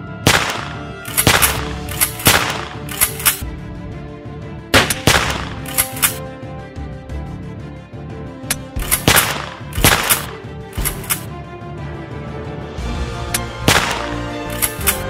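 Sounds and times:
background music with sustained tones: 0:00.0 - 0:15.0
gunshot sound effects: 0:00.2 - 0:02.8, 0:04.8 - 0:05.6, 0:08.9 - 0:11.0, 0:13.7 - 0:14.2.

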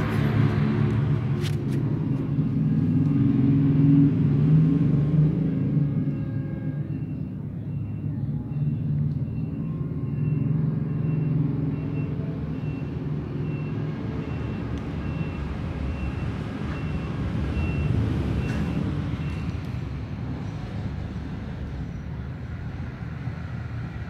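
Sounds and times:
vehicle engine rumbling: 0:00.0 - 0:24.0.

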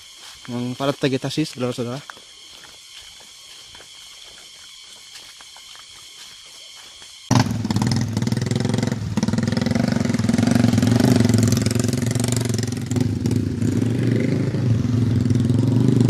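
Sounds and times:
steady high tones: 0:00.0 - 0:07.3
faint forest ambience: 0:00.0 - 0:08.7
motorcycle engine labouring: 0:07.3 - 0:16.0.

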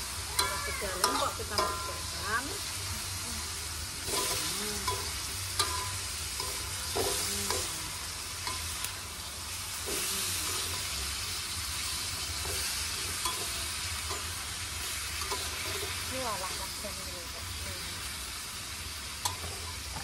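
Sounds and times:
vegetables sizzling in a wok: 0:00.0 - 0:20.0.

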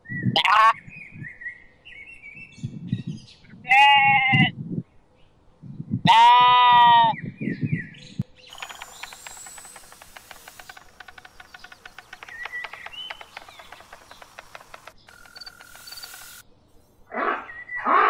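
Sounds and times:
lamb bleating: 0:00.4 - 0:00.8, 0:03.7 - 0:04.5, 0:06.1 - 0:07.2.

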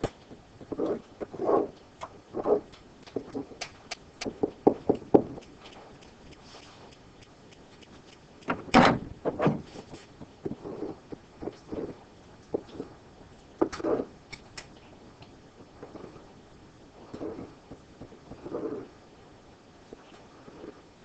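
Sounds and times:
sharp clicks and knocks: 0:02.0 - 0:09.7.

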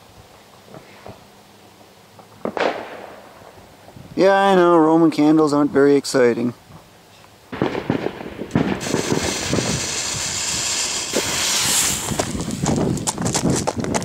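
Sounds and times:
firework fizzing hiss: 0:07.6 - 0:13.3.

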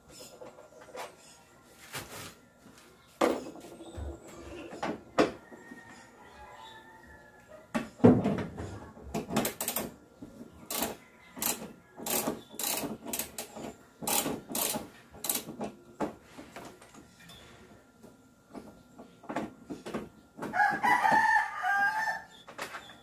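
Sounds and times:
sharp clicks and knocks of tools: 0:10.7 - 0:15.6.

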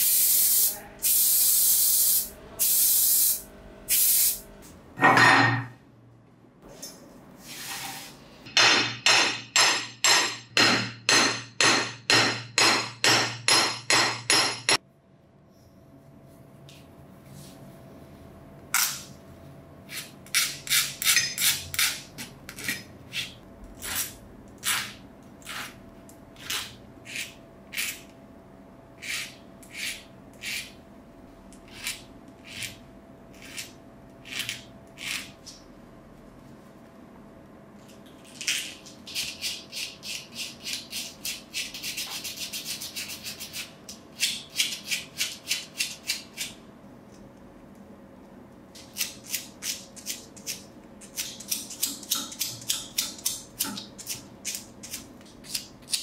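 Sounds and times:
spray paint can hissing: 0:00.0 - 0:04.4
hammer striking metal: 0:08.5 - 0:14.8.

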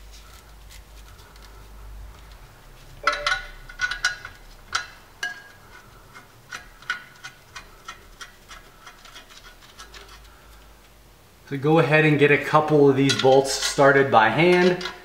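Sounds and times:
metallic clinks and ticks: 0:03.0 - 0:05.6.

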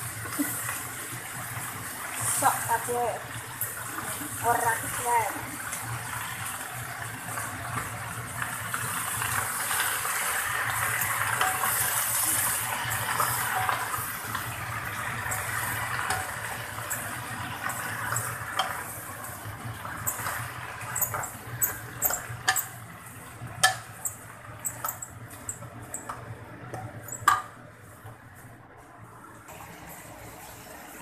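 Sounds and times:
greens sizzling in oil: 0:00.0 - 0:27.6
spatula scraping a pan: 0:19.8 - 0:22.9, 0:23.6 - 0:26.2.

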